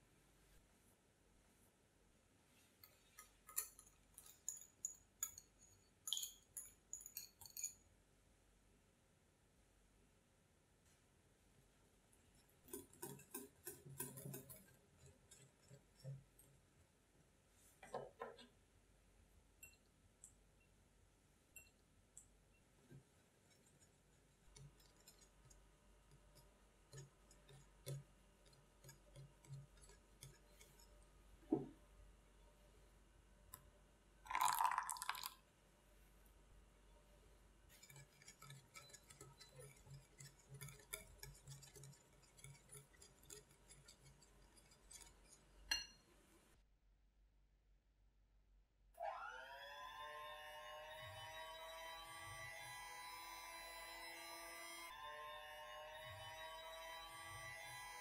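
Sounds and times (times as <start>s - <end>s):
whisk clinking against glass bowl: 2.8s - 7.8s, 12.6s - 16.5s, 37.7s - 46.1s
yogurt scraped from bowl: 12.6s - 16.5s, 37.7s - 45.6s.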